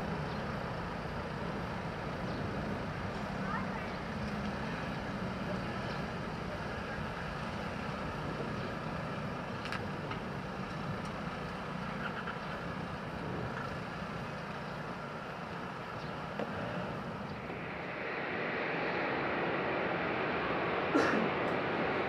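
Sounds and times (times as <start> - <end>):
distant jet engines rumbling: 0.0 - 22.0.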